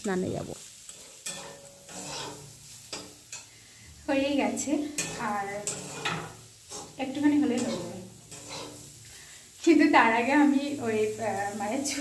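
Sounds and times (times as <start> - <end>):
person speaking: 0.0 - 0.6
potatoes sizzling in oil: 0.0 - 12.0
spatula scraping a pan: 0.6 - 12.0.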